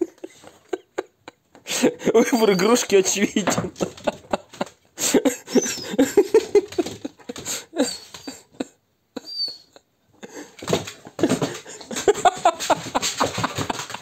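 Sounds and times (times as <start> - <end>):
dog whining and yipping: 5.5 - 6.3, 7.8 - 8.6, 9.2 - 9.8.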